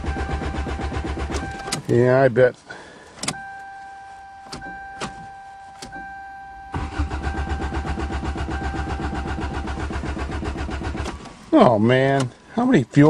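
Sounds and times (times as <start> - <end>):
clicks: 3.2 - 6.1
warning chime tone: 3.4 - 9.4
starter motor cranking engine: 6.7 - 11.3.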